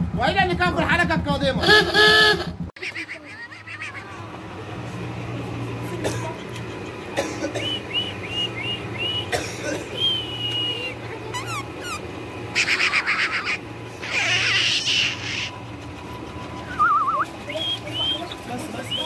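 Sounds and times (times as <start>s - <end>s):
dog panting hard: 14.2s - 19.0s
high whistle-like tone: 16.7s - 18.2s
short high chirps: 16.7s - 18.2s.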